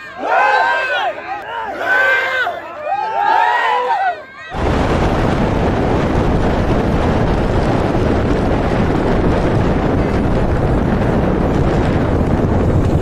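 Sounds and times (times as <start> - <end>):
wind buffeting microphone: 4.5 - 13.0.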